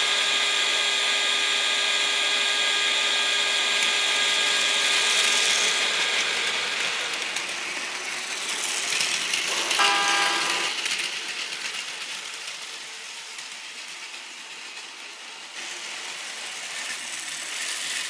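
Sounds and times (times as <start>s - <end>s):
toy train motor whine: 0.0s - 18.0s
plastic wheels rattling on track: 4.8s - 18.0s.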